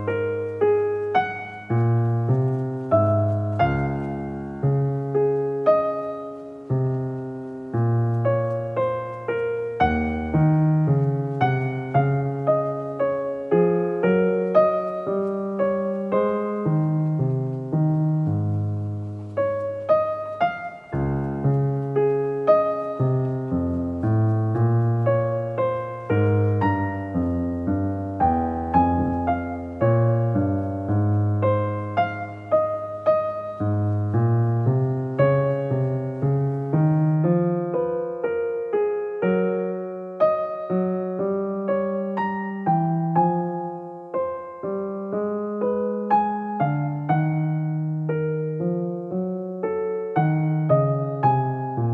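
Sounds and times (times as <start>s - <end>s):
background piano music: 0.0s - 51.9s.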